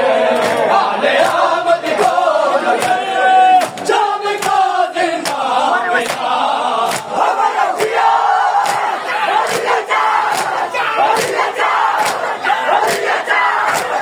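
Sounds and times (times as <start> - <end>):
men chanting together: 0.0 - 14.0
hands slapping chests: 0.4 - 1.4, 2.8 - 3.0, 3.6 - 7.2, 8.6 - 14.0.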